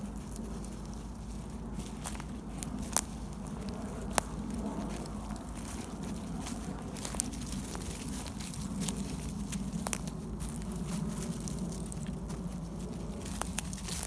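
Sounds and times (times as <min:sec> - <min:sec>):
footsteps crunching dry leaves: 0:00.0 - 0:14.0
leaves and twigs crackling: 0:00.0 - 0:14.0
steady low rumble: 0:00.0 - 0:14.0.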